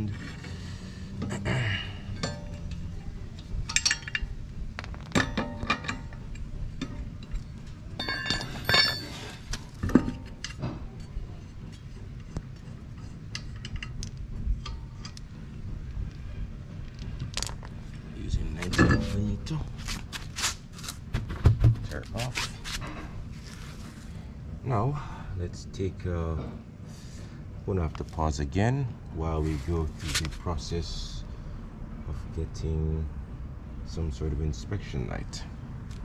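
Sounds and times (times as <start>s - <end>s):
lug nuts and wrench clinking: 2.0s - 17.8s, 18.5s - 20.0s.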